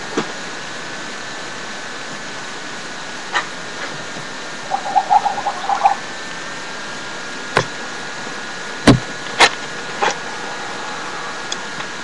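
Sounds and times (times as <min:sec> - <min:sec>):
rapid pulsing burble: 0:04.4 - 0:06.5.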